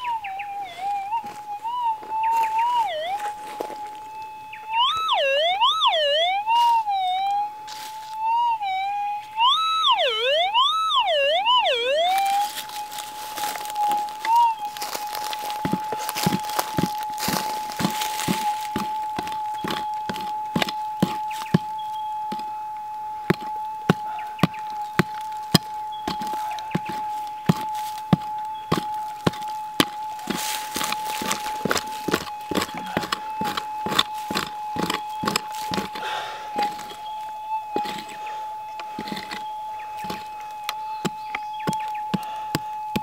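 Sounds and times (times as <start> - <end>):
metal detector tone: 0.0 - 43.0
pick striking soil: 12.0 - 22.5, 23.2 - 43.0.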